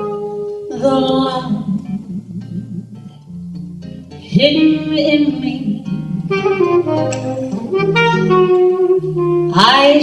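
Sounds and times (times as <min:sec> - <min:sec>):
jazz saxophone solo: 0:00.0 - 0:00.7, 0:06.2 - 0:10.0
low accompaniment: 0:00.0 - 0:09.6.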